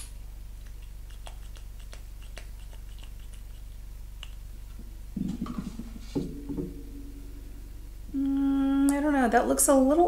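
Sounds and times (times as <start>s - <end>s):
low handling noise with thumps: 4.8s - 9.1s.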